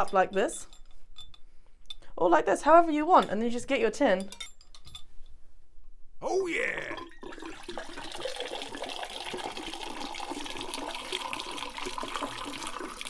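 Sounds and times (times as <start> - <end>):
water gushing into metal tin: 7.0 - 13.0.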